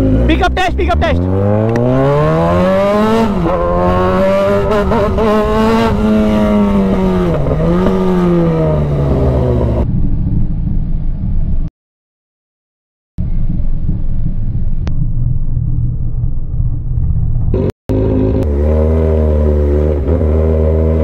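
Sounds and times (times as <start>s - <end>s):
motorcycle engine accelerating: 0.0s - 11.7s, 13.2s - 21.0s.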